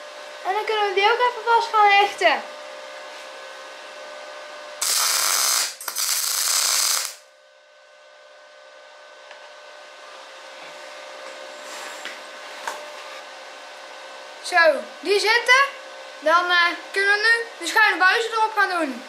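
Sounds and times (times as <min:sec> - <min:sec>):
steady machine hum: 0:00.0 - 0:19.0
welding arc crackling: 0:04.8 - 0:07.3.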